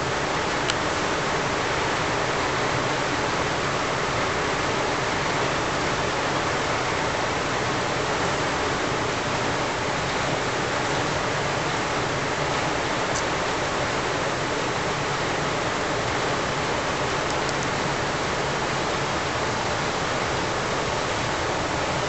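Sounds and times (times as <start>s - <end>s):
steady rushing hiss: 0.0s - 22.0s.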